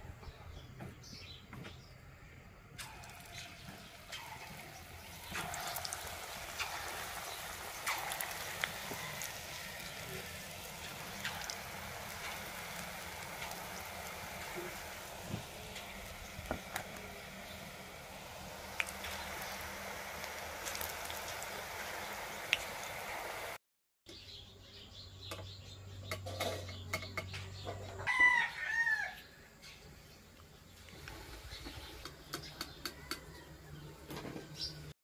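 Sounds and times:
batter sizzling in hot oil: 2.8s - 23.6s
oil popping: 2.8s - 23.6s.

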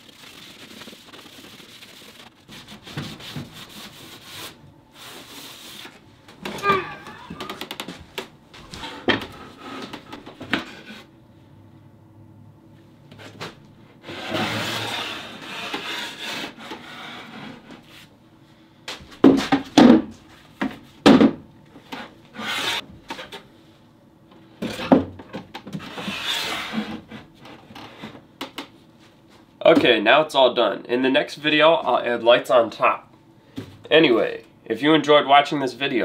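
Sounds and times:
cloth rubbing on rough wood: 0.0s - 6.0s.

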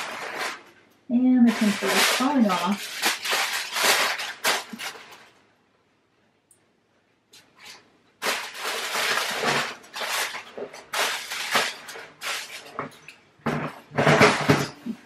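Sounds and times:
foil crinkling and rustling: 0.0s - 0.8s, 1.4s - 5.4s, 7.5s - 13.2s.

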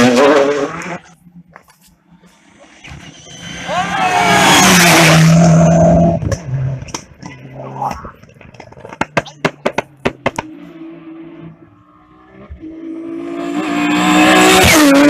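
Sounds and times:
rally car engine at high revs: 0.0s - 1.2s, 4.1s - 7.0s, 9.4s - 15.0s.

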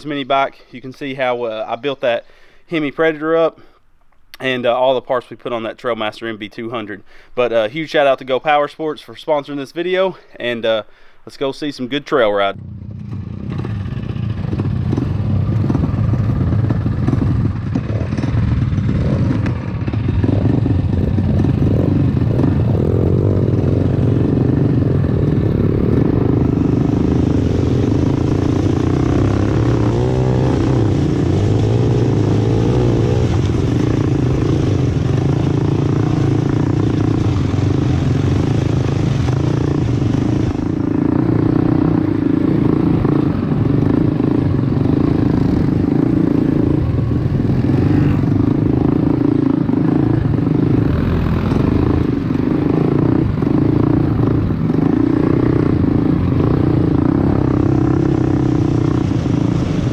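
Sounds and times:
mini bike engine running: 12.6s - 46.8s.

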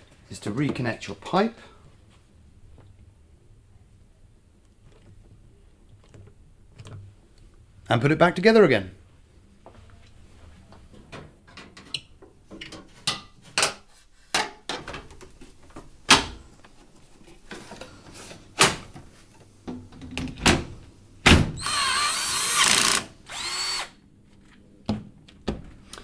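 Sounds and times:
panels knocking and clunking: 10.8s - 21.6s
cordless drill driving screws: 21.6s - 24.0s.

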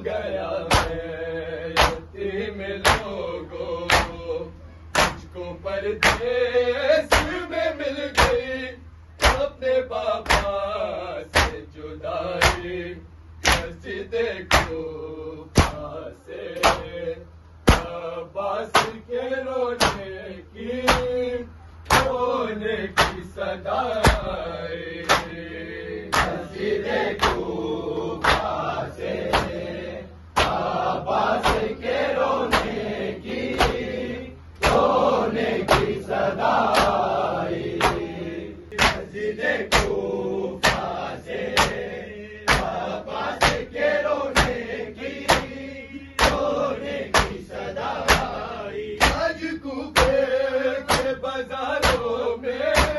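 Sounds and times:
men chanting a lament: 0.0s - 52.9s
chest beating slaps: 0.7s - 1.1s, 1.8s - 2.1s, 3.9s - 4.2s, 4.9s - 5.3s, 6.0s - 6.3s, 9.2s - 9.5s, 10.3s - 10.6s, 11.3s - 11.6s, 14.5s - 14.8s, 15.6s - 15.9s, 17.7s - 18.0s, 20.9s - 21.2s, 21.8s - 22.2s, 23.0s - 23.2s, 25.0s - 25.4s, 28.2s - 28.6s, 30.4s - 30.6s, 31.4s - 31.8s, 38.7s - 39.1s, 42.5s - 42.8s, 49.0s - 49.3s, 51.8s - 52.1s.

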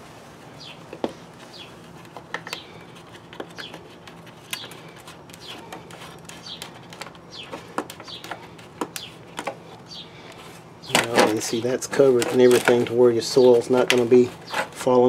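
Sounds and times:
small bird chirping: 0.6s - 0.8s, 2.5s - 11.7s
plastic panel clicking and crackling: 2.1s - 9.6s.

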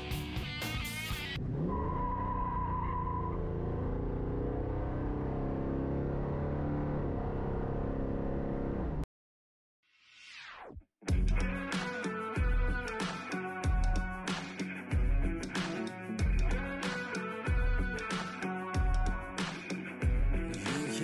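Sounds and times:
car engine accelerating hard: 1.4s - 9.0s.

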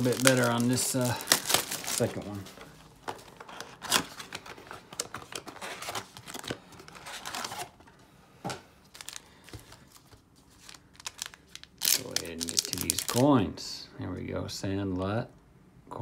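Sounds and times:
card packs crinkling: 0.0s - 7.9s, 8.8s - 13.5s.

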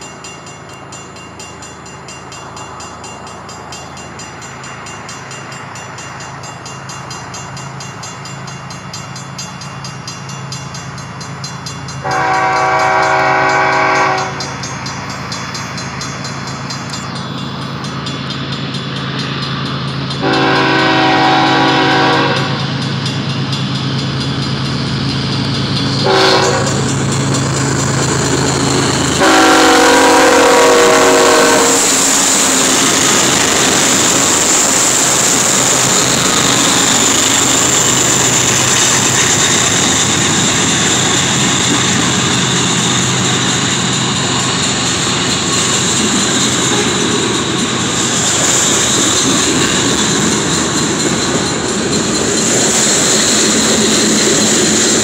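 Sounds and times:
freight train wheels rumbling: 0.0s - 55.0s
locomotive horn blasts: 12.0s - 14.6s, 20.2s - 22.8s, 26.0s - 26.9s, 29.2s - 32.0s, 46.7s - 47.2s.

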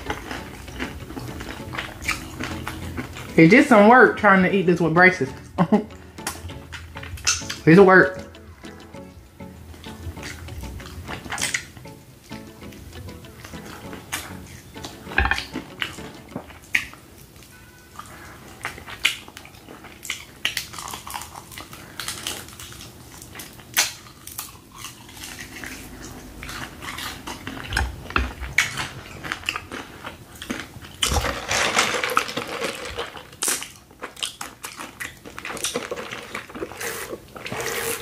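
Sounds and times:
crunching fried chicken: 0.0s - 4.2s, 13.5s - 38.0s.

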